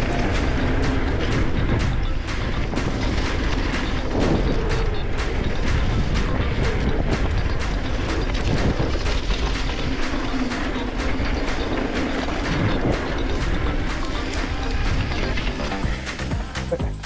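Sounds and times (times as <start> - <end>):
wind rushing: 0.0 - 16.0
background music with steady beat: 0.0 - 17.0
bike trail rumble: 0.0 - 17.0.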